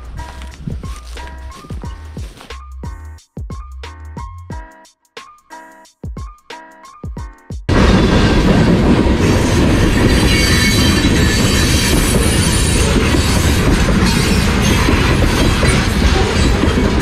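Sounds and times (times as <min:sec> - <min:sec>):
train wheels rumbling on rails: 0:07.7 - 0:17.0
high-pitched wheel squeal: 0:09.8 - 0:16.6.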